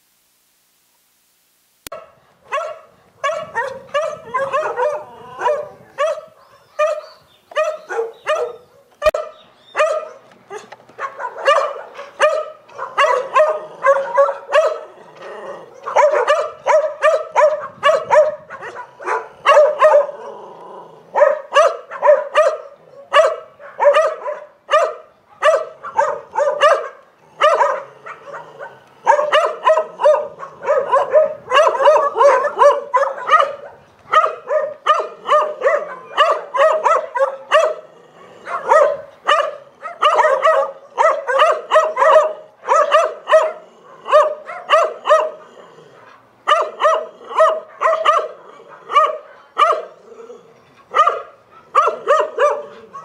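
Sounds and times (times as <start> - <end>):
dogs barking: 1.9 - 53.0.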